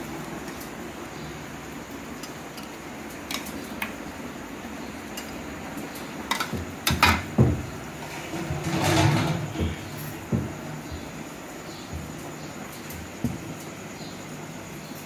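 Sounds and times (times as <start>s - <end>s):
utensils knocking and clattering: 2.2s - 4.1s, 5.1s - 13.7s.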